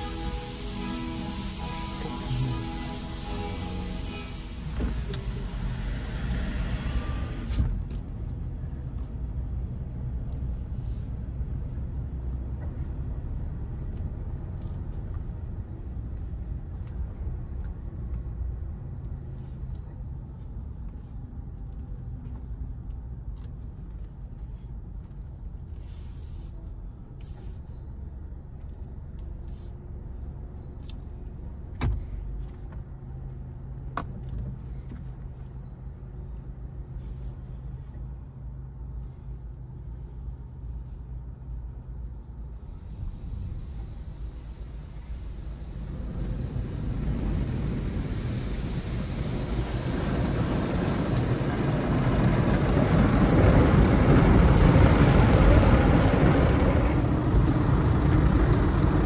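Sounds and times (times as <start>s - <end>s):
bursts of hiss: 0.0s - 5.2s
car wash machinery rumble: 0.0s - 21.9s, 39.0s - 59.0s.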